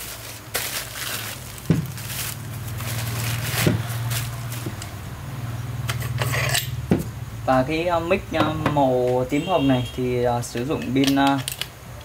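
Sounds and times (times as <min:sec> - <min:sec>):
steady low hum: 0:00.0 - 0:10.3
microphone handling knocks: 0:01.7 - 0:02.0.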